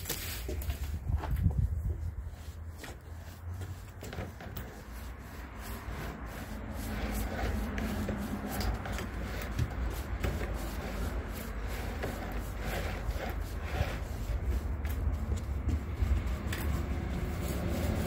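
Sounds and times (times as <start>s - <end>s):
paint roller rubbing on wood: 0.0s - 18.0s.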